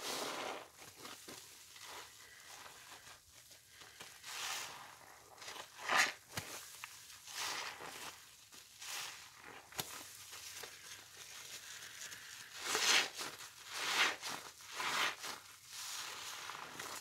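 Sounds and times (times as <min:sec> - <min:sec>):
wet sponges squelching: 0:00.0 - 0:17.0.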